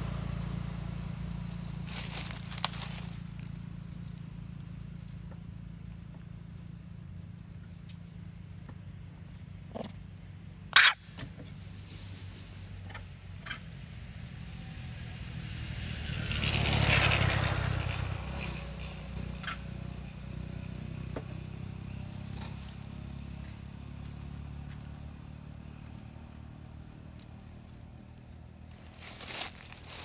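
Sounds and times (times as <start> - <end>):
vehicle passing: 0.0 - 4.9, 11.8 - 30.0.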